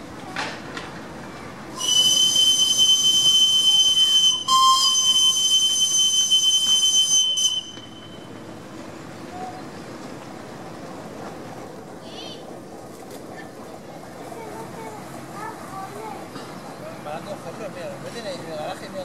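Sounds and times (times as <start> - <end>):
steam whistle blasts: 1.8 - 8.4.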